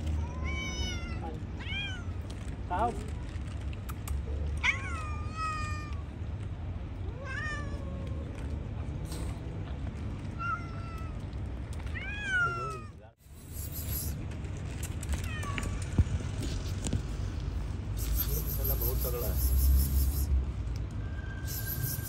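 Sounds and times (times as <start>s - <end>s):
cats meowing: 0.0s - 2.5s, 4.4s - 6.2s, 7.0s - 8.6s, 10.2s - 14.2s, 15.0s - 16.2s, 21.4s - 22.0s.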